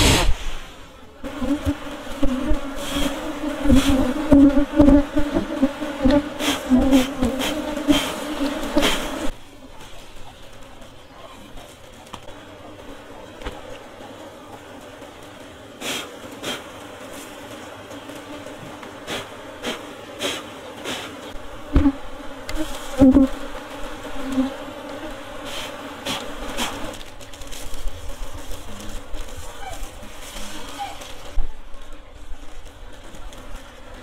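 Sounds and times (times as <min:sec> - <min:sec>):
bees buzzing: 0:00.0 - 0:09.4, 0:12.3 - 0:31.4
wooden hive knocks and clicks: 0:20.8 - 0:25.1.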